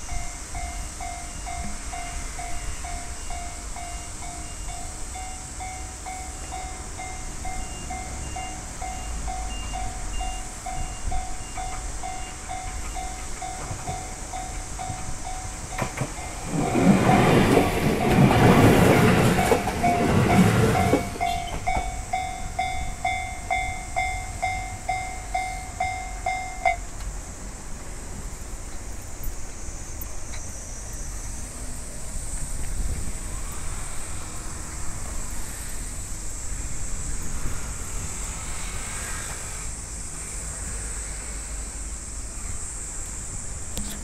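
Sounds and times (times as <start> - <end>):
electric train passing: 0.0 - 44.0
level crossing bell clanging: 0.1 - 26.8.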